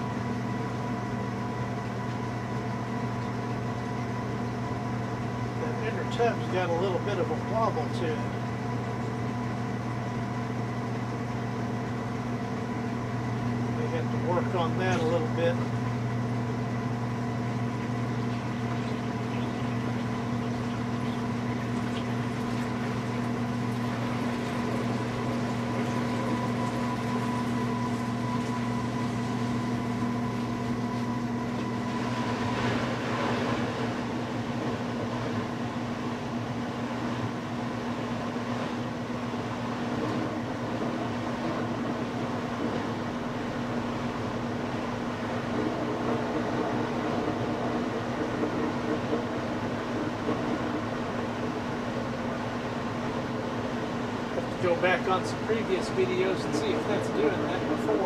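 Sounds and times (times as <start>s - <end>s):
washing machine spinning: 0.0s - 58.0s.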